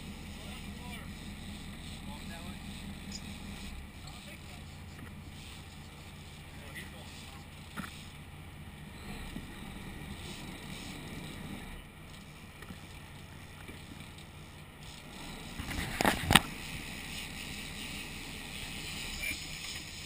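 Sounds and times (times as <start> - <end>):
boat engine idling: 0.0 - 20.0
wind: 0.0 - 20.0.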